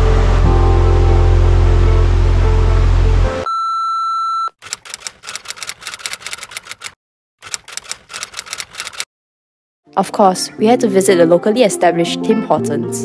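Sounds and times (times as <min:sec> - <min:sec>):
background music: 0:00.0 - 0:03.4, 0:09.9 - 0:13.0
typewriter key clicks: 0:04.6 - 0:09.1.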